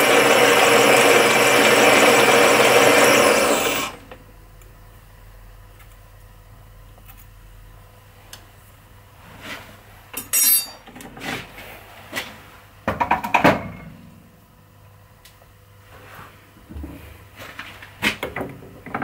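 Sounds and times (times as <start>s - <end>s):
metal tools clinking on lathe: 10.2s - 10.8s.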